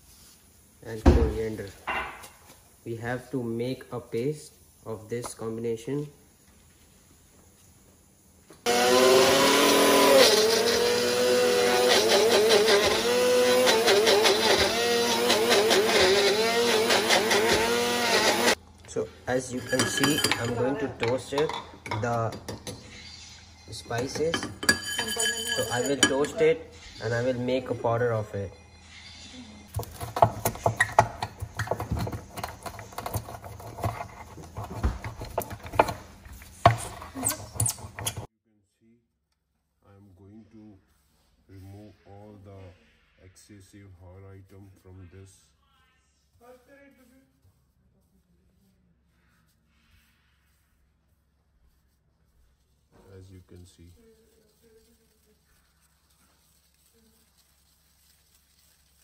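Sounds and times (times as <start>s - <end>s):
mixer grinder motor whining: 8.7s - 18.6s
rolling pin crushing spices: 29.7s - 38.3s.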